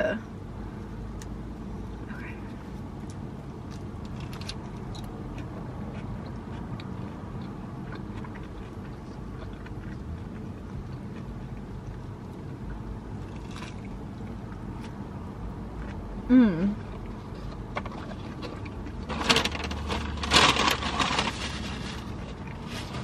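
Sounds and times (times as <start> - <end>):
car cabin drone: 0.0 - 23.0
sandwich chewing and crunching: 2.5 - 16.2, 16.8 - 23.0.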